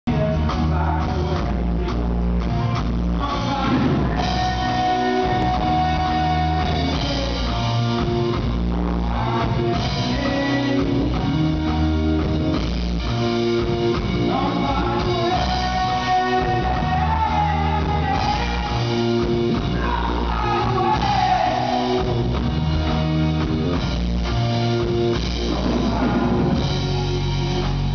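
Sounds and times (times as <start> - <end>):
drums: 0.0 - 27.9
man singing into a microphone: 0.1 - 7.8, 8.7 - 11.6, 14.2 - 22.3, 25.4 - 27.9
live rock band playing: 0.1 - 27.9.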